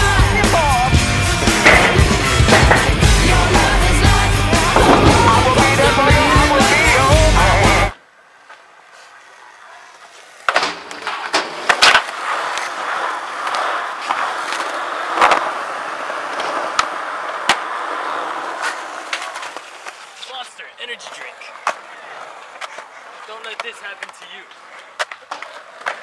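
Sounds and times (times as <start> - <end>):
rock music: 0.0 - 8.0
skateboard wheels on concrete: 0.0 - 26.0
skateboard clacking on ground: 0.4 - 20.3, 21.0 - 26.0.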